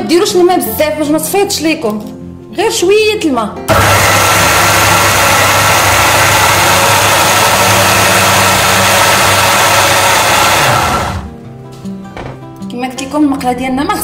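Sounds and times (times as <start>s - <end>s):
electric blender whirring: 3.7s - 11.3s.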